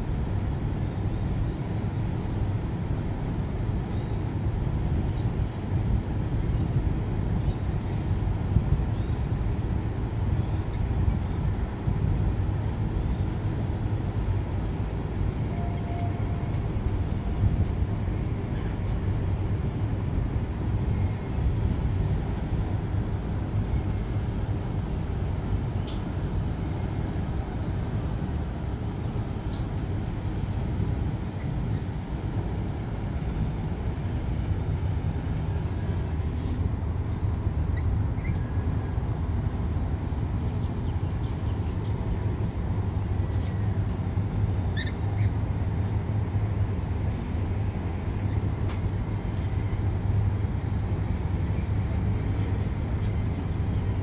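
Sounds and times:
boat traffic rumble: 0:00.0 - 0:54.0
city noise: 0:00.0 - 0:54.0.

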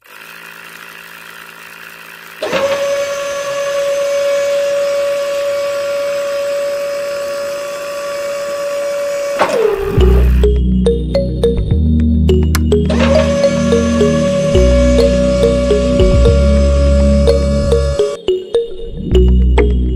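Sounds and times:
small motor humming: 0:00.0 - 0:10.4, 0:12.8 - 0:18.2.

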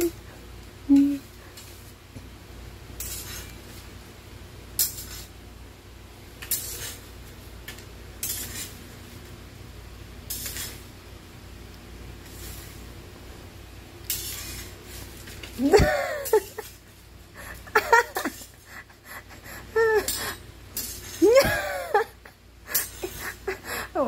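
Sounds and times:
metal spatula scraping floor: 0:03.0 - 0:04.0, 0:04.7 - 0:05.4, 0:06.3 - 0:09.3, 0:10.2 - 0:11.0, 0:12.1 - 0:13.4, 0:14.0 - 0:18.7, 0:20.0 - 0:21.5, 0:22.7 - 0:23.5.

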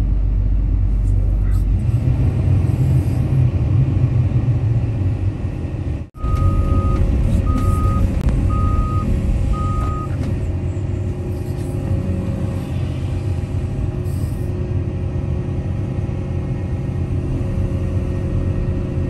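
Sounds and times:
diesel engine rumbling: 0:00.0 - 0:19.0
backup alarm beeping: 0:06.2 - 0:10.2.

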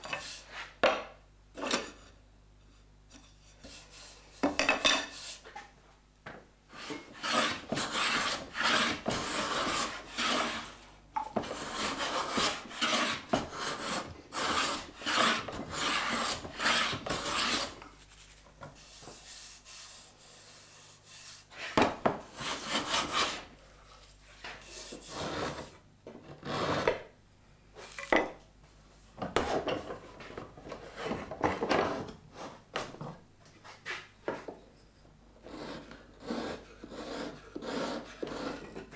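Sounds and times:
hand plane shaving wood: 0:06.8 - 0:10.8, 0:11.4 - 0:17.8, 0:18.8 - 0:23.4, 0:35.5 - 0:38.9.

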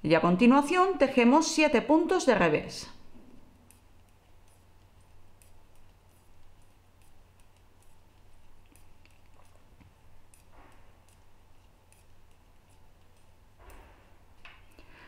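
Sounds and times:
low steady hum: 0:00.0 - 0:15.0
knitting needles clicking: 0:03.4 - 0:15.0.

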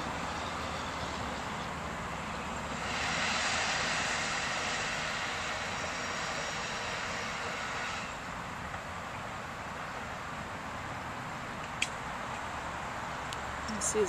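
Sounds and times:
rushing water hiss: 0:00.0 - 0:14.0.

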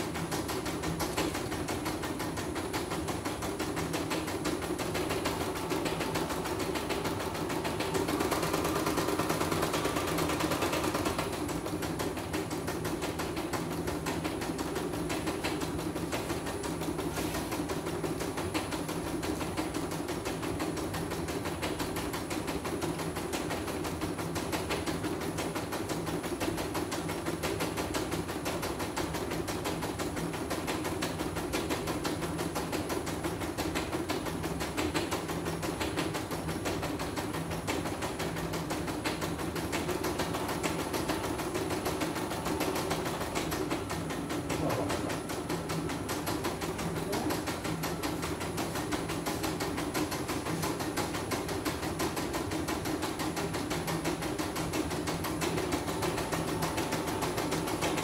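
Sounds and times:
motor hum: 0:39.2 - 0:49.5.

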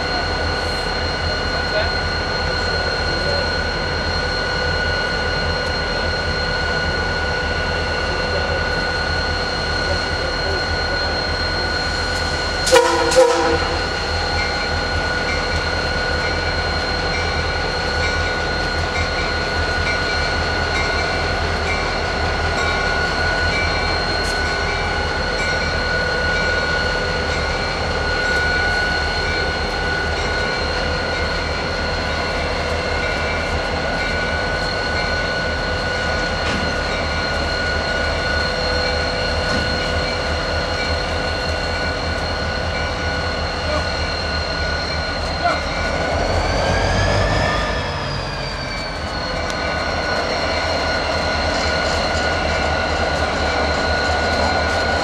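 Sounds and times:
constant whine: 0:00.0 - 0:55.0
diesel locomotive engine hum: 0:00.0 - 0:55.0
locomotive horn toots: 0:12.6 - 0:13.9.

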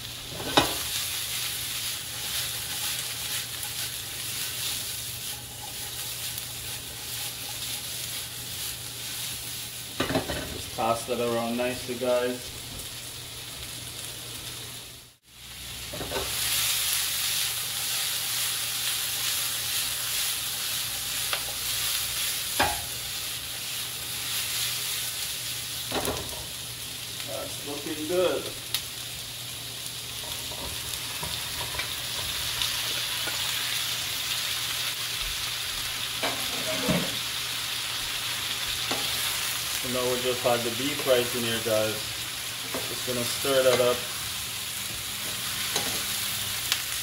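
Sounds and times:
vegetables sizzling in oil: 0:00.0 - 0:47.0.

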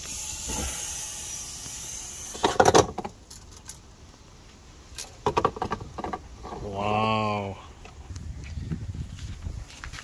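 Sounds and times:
plastic hatch knocking and rattling: 0:05.2 - 0:06.2.

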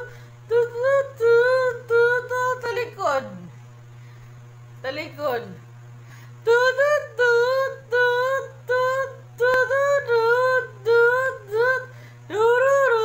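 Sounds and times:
high voice singing: 0:00.0 - 0:03.5, 0:06.4 - 0:13.0.

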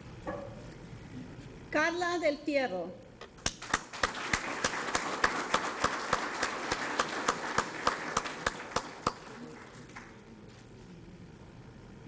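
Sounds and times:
sharp claps close to microphone: 0:03.3 - 0:10.3
crowd clapping: 0:03.4 - 0:10.3.

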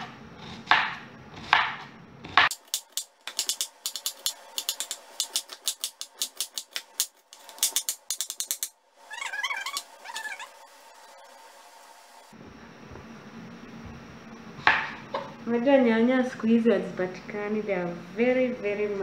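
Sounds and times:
knife chopping onion on board: 0:00.0 - 0:08.6
short wavering call: 0:09.1 - 0:10.7.

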